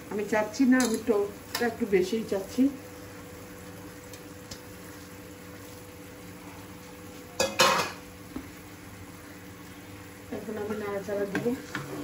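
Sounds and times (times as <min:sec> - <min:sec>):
food sizzling in a pan: 0:00.0 - 0:12.0
metal dish clatter: 0:07.4 - 0:08.0.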